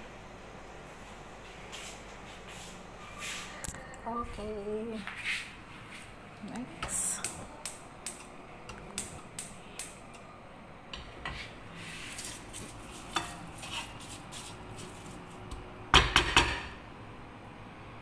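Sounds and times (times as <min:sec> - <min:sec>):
wooden spatula scraping a pan: 0:11.2 - 0:15.4
spatula knocking against pan: 0:15.9 - 0:16.8.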